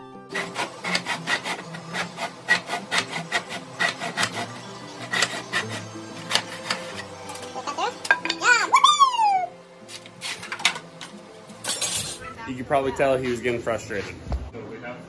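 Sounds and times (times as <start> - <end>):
handsaw cutting wood: 0.3 - 7.1.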